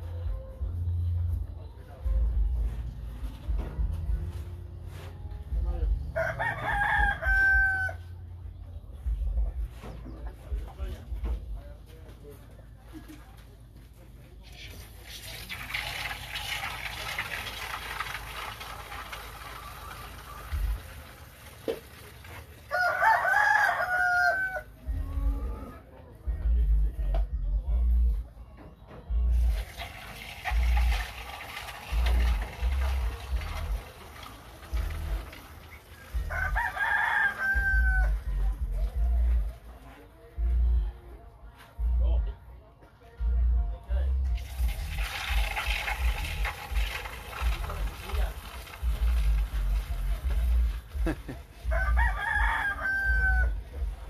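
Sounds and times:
rooster crowing: 0:06.2 - 0:08.2, 0:22.7 - 0:24.8, 0:36.1 - 0:38.4, 0:51.6 - 0:53.6
milk squirting into a cup: 0:14.7 - 0:22.5, 0:29.5 - 0:36.0, 0:44.4 - 0:49.9.

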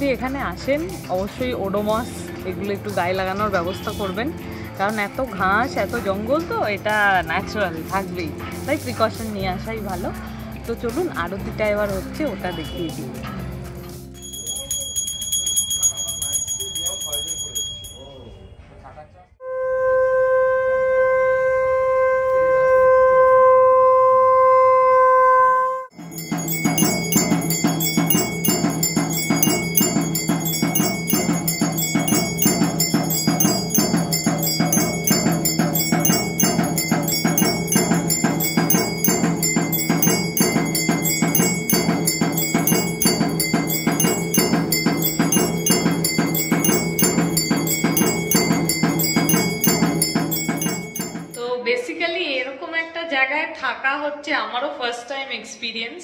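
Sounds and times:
clanging metal percussion: 0:13.3 - 0:18.2, 0:25.9 - 0:51.5
temple bells ringing: 0:14.2 - 0:18.5, 0:26.0 - 0:51.5
conch shell blown: 0:19.4 - 0:25.0.

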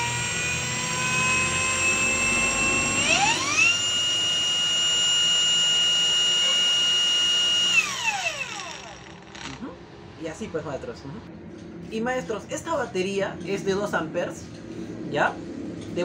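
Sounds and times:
angle grinder whining: 0:00.0 - 0:09.7.

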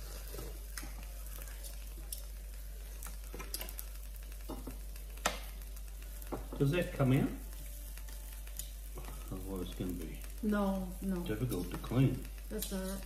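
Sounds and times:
meat sizzling on grill: 0:00.0 - 0:13.0
metal tongs clicking on grill: 0:01.6 - 0:02.3, 0:03.0 - 0:04.5, 0:08.0 - 0:08.8, 0:11.1 - 0:13.0.

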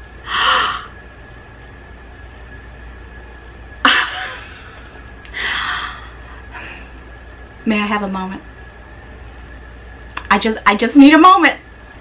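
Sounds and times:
woman gasping: 0:00.3 - 0:00.9.

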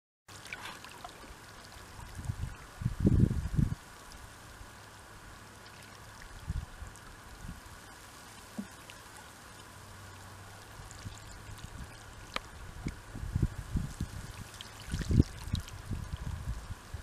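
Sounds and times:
water lapping among rocks: 0:00.3 - 0:02.4.

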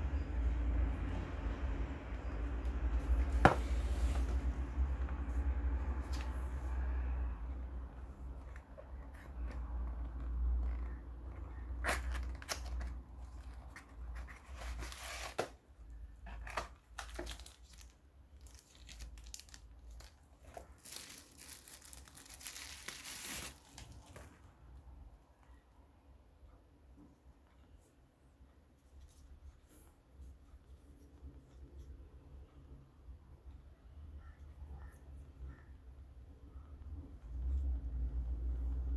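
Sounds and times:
cardboard box opening: 0:11.8 - 0:15.6
bubble wrap crinkling: 0:16.2 - 0:24.3.

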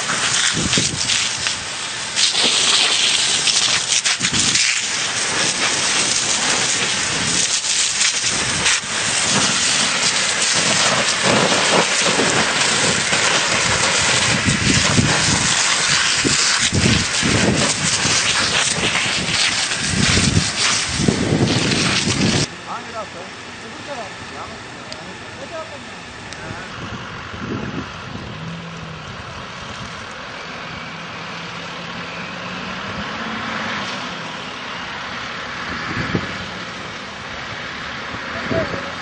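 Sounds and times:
fire crackling: 0:00.0 - 0:38.9
fire rushing hiss: 0:00.0 - 0:39.0
low rumbles: 0:03.3 - 0:39.0.

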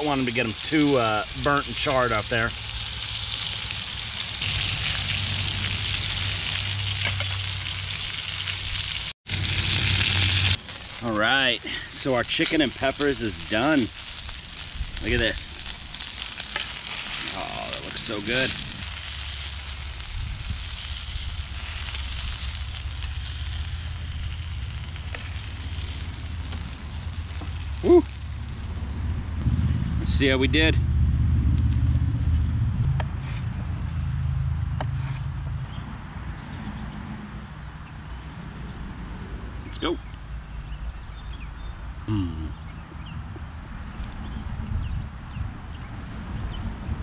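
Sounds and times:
food sizzling in pan: 0:00.0 - 0:28.9
low rumble: 0:17.1 - 0:35.7.

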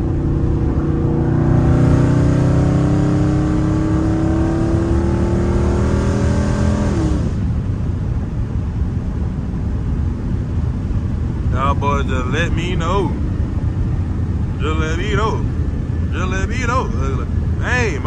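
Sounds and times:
car engine accelerating: 0:00.0 - 0:18.0
road and tyre noise: 0:00.0 - 0:18.0.

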